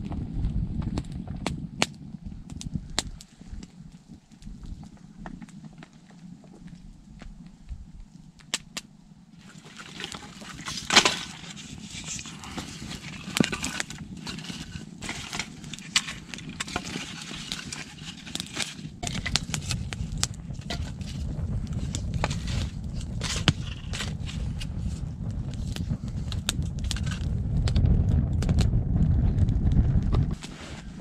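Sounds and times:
wood fire crackling and popping: 0.0 - 31.0
wood knocks being set down: 9.7 - 11.6.

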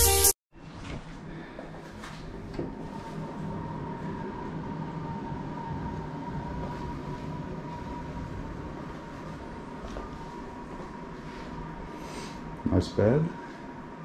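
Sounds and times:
droning hum with thin whine: 0.8 - 14.0.

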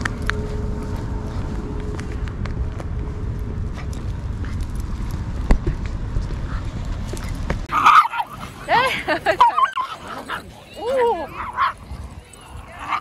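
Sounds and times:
low wind rumble: 0.0 - 13.0
dogs yapping and growling: 6.4 - 13.0.

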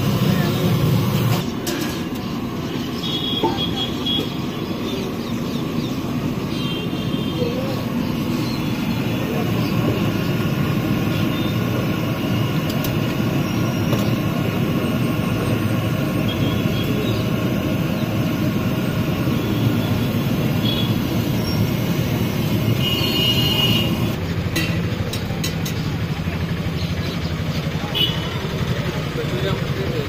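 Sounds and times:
deep-frying in hot oil: 0.0 - 25.9.

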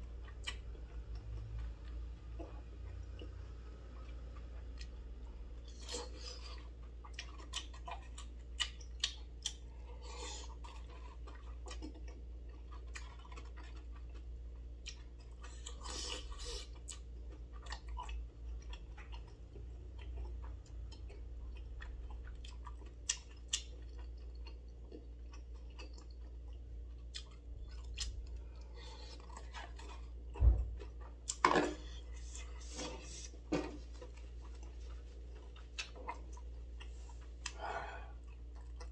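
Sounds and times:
chewing and slurping: 0.1 - 38.9
loud thump: 30.4 - 30.7.

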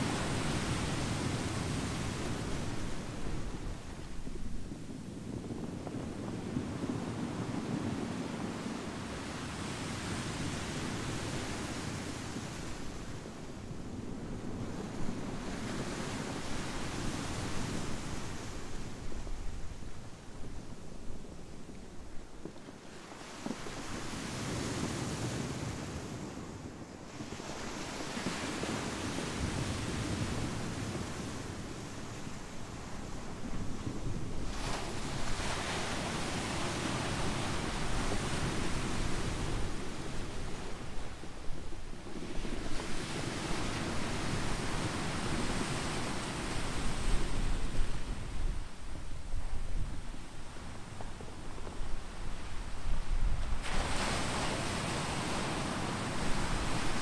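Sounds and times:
wind: 0.0 - 57.0
surf washing over pebbles: 27.2 - 49.3, 50.6 - 57.0.

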